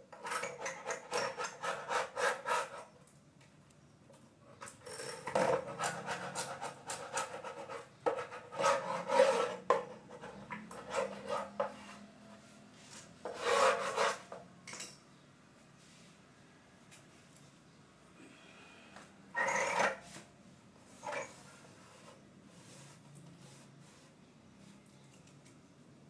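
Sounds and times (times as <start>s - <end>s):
chisel scraping wood veneer: 0.2s - 2.9s, 5.4s - 12.1s, 13.2s - 14.4s.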